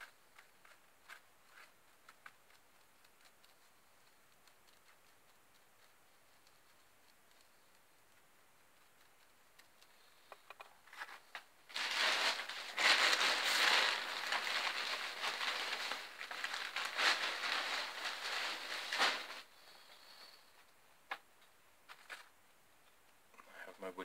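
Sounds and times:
packaging crinkling: 11.2 - 19.5.

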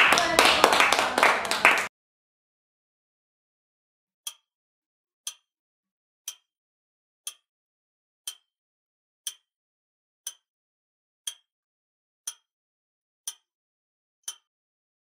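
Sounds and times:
clock ticking: 5.2 - 5.5, 6.3 - 6.5, 8.2 - 8.5, 9.2 - 9.5, 10.2 - 10.4, 11.3 - 11.5, 13.3 - 13.5, 14.2 - 14.5.

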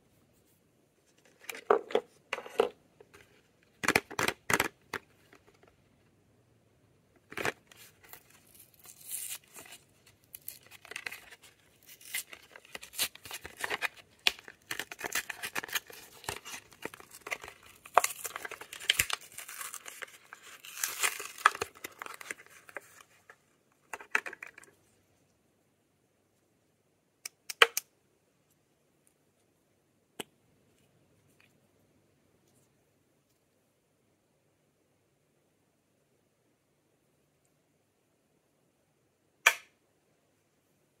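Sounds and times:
packaging torn and crinkled: 7.5 - 23.0.

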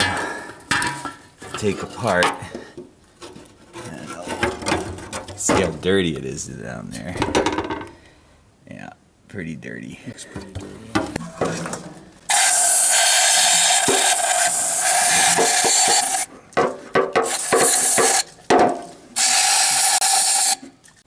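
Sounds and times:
aerosol spray can hissing: 12.3 - 16.3, 17.2 - 18.3, 19.2 - 20.6.

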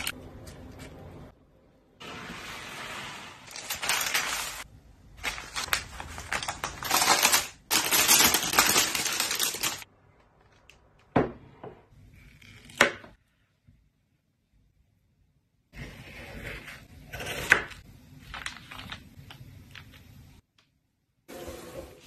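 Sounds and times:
baking paper crinkling: 3.4 - 9.9, 18.1 - 20.1.

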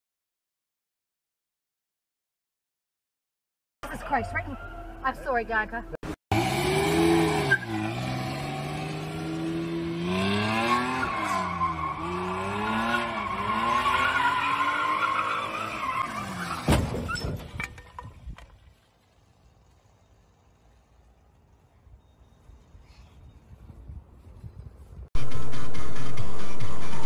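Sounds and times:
car engine revving: 6.3 - 16.4
car hitting curb thump: 16.6 - 18.4.

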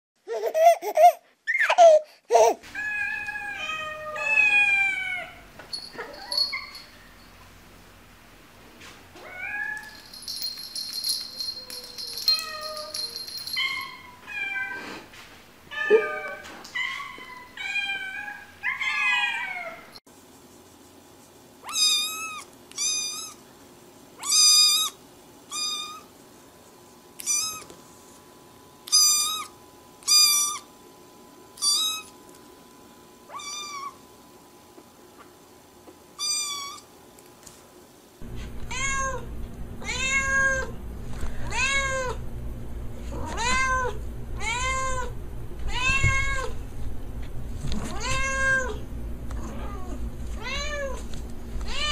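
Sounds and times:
cats meowing: 2.7 - 6.4, 38.3 - 40.7, 43.1 - 45.1.

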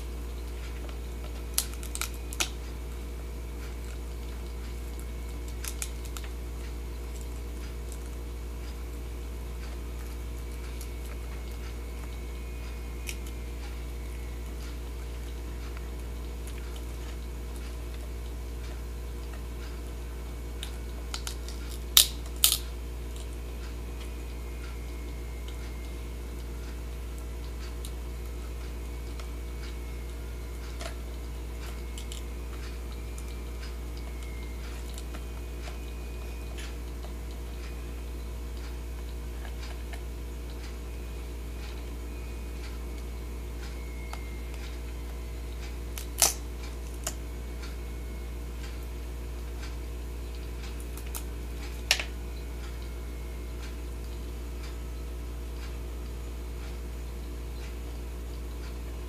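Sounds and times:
crab eating chips: 0.0 - 42.1
steady low hum: 0.0 - 59.0.

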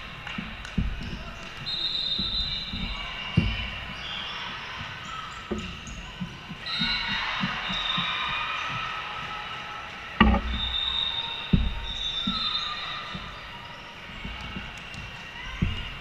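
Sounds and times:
sharp thumps in a gymnasium: 0.0 - 16.0
soft knocks: 0.3 - 1.6, 10.2 - 10.8, 11.5 - 12.5, 15.4 - 16.0
faint high squeal: 1.1 - 16.0.

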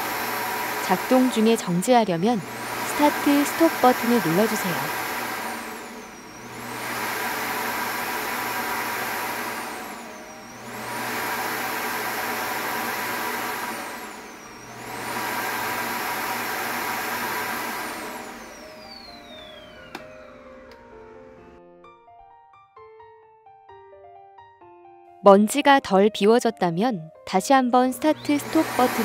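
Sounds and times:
vacuum suction motor whining: 0.0 - 21.5, 28.0 - 29.0.

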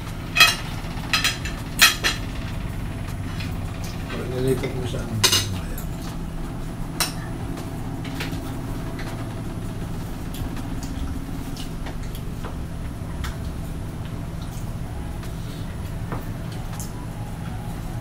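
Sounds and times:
steady low hum: 0.0 - 18.0
cutlery clinking on ceramic plates: 5.2 - 5.9.

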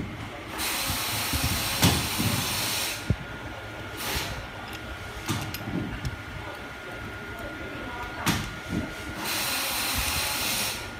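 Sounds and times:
tool parts clicking and knocking: 4.6 - 6.6
compressed air hissing: 9.2 - 10.9.

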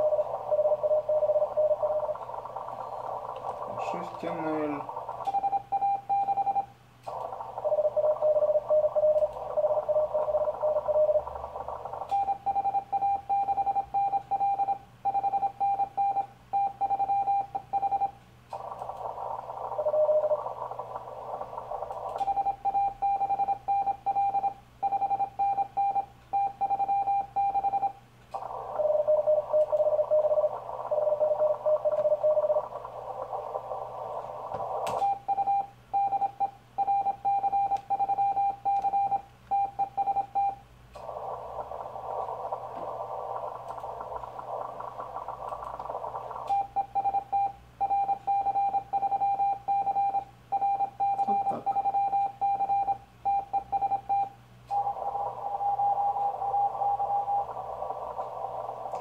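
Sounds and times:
low-pitched morse signal: 0.0 - 6.7, 7.6 - 59.0
radio receiver hiss: 0.0 - 14.0, 17.4 - 22.9, 28.0 - 36.8, 38.5 - 48.3, 54.4 - 59.0.

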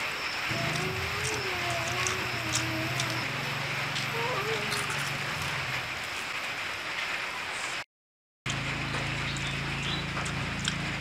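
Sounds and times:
close chewing sounds: 0.5 - 6.3, 9.3 - 11.0.

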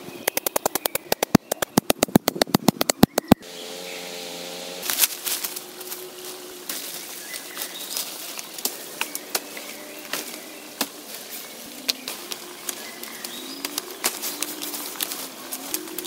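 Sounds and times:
dry leaves and twigs crackling: 0.0 - 16.0
low bird calls: 0.0 - 16.0
faint bird chirps: 2.9 - 4.3, 6.4 - 16.0.

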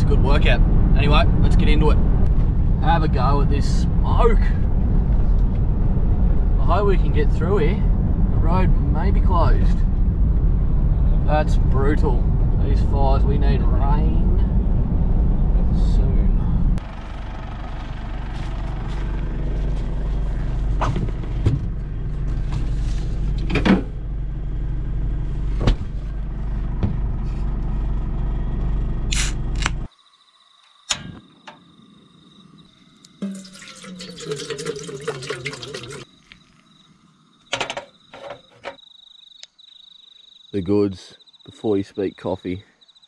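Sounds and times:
steady low rumble with clicks: 0.0 - 16.8, 17.8 - 29.9
crickets trilling: 29.4 - 43.0
water poured into metal pot: 33.2 - 36.1.

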